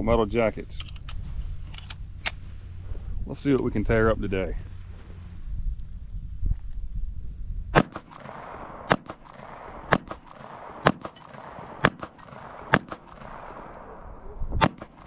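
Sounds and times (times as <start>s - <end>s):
pistol shots echoing: 7.7s - 15.0s.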